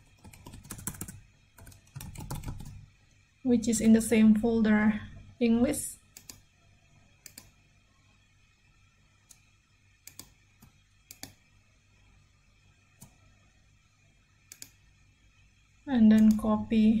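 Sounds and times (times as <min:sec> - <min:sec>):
low steady hum: 0:00.0 - 0:17.0
computer mouse clicks: 0:06.1 - 0:06.5, 0:07.2 - 0:07.6, 0:09.2 - 0:11.4, 0:14.5 - 0:14.8, 0:16.2 - 0:16.4.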